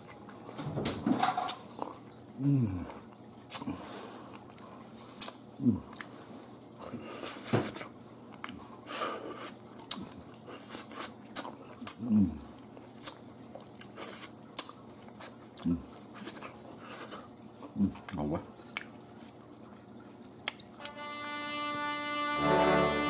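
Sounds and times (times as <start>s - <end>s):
person chewing and lip-smacking: 2.8s - 6.2s, 7.7s - 21.0s.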